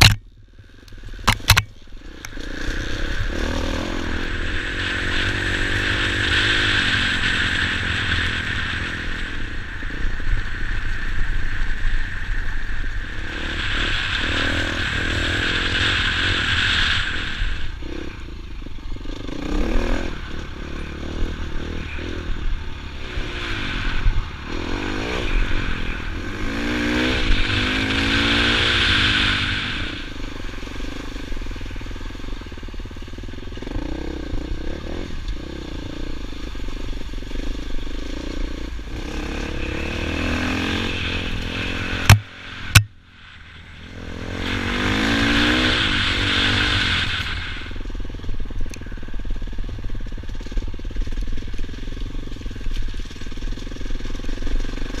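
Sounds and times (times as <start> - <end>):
dirt bike engine revving: 0.0 - 10.6, 13.0 - 55.0
sharp knocks: 42.1 - 42.9.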